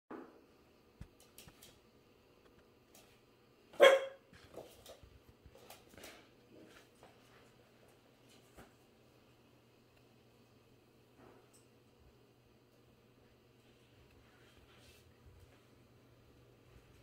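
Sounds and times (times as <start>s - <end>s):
puppy barking: 3.8s - 4.2s.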